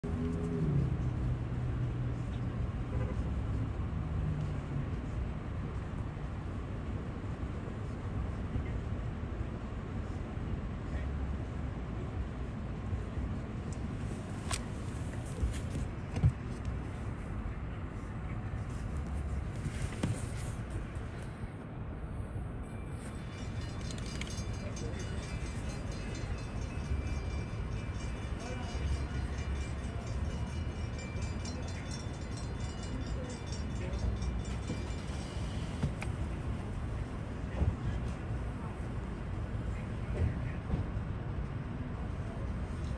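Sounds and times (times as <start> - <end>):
car engines rumbling: 0.0 - 42.9
crossing warning bell ringing: 22.6 - 36.7.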